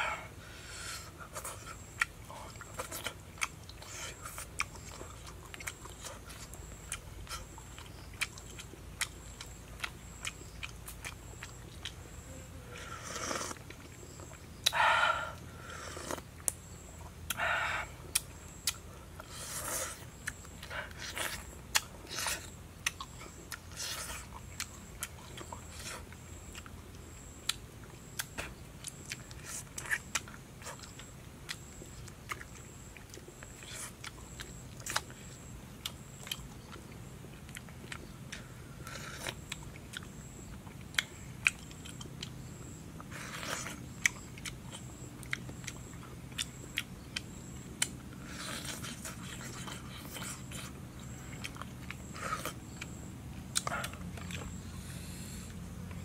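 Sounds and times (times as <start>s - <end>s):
man chewing wetly: 0.0s - 56.0s.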